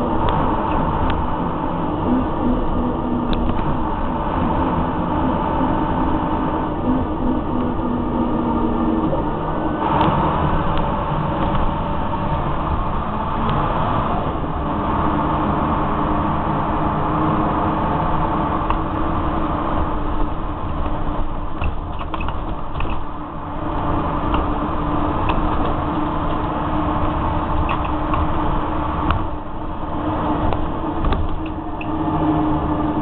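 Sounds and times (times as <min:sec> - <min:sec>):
bus diesel engine running: 0:00.0 - 0:33.0.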